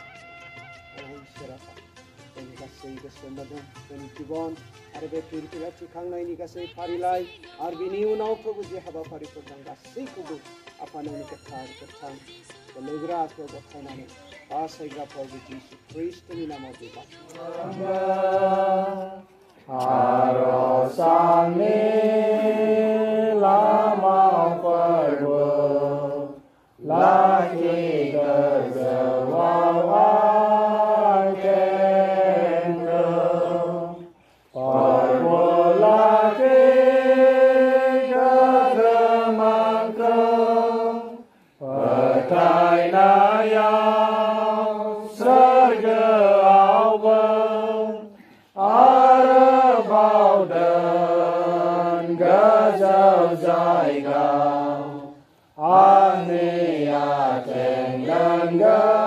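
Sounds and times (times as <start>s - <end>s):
congregation singing a hymn: 17.2s - 59.0s.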